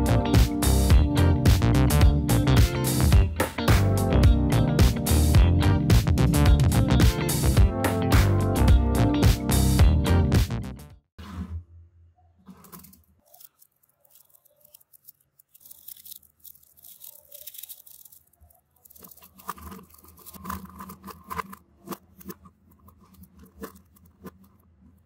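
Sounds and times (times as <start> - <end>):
magnetic balls rattling: 12.5 - 25.0
magnetic balls clicking together: 12.8 - 24.6.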